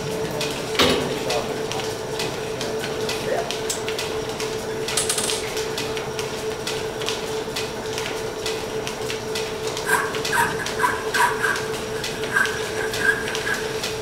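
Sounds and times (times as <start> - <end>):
rapid clatter of clicks: 0.2 - 14.0
lathe humming: 8.2 - 14.0.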